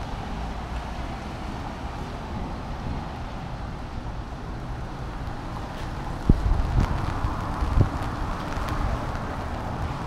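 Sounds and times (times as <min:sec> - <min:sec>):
street noise rumble and hiss: 0:00.0 - 0:10.0
wind buffeting microphone: 0:04.5 - 0:10.0.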